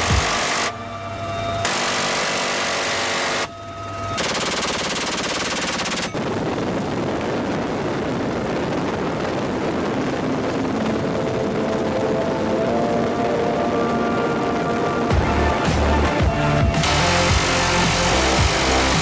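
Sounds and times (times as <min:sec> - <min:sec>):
helicopter noise: 0:00.0 - 0:19.0
minigun firing: 0:04.2 - 0:06.3.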